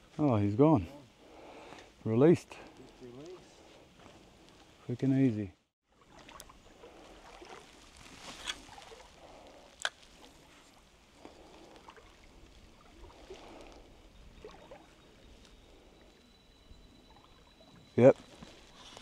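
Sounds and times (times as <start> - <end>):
creek water trickling: 5.8 - 19.0.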